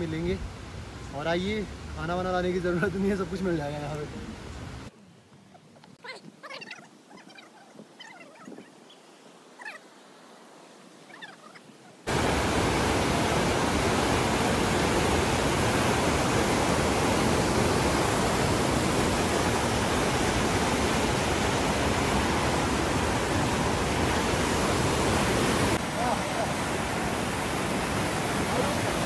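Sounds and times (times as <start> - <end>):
faint chirping calls: 5.0 - 9.9, 11.0 - 12.1
waterfall rushing: 11.1 - 29.0.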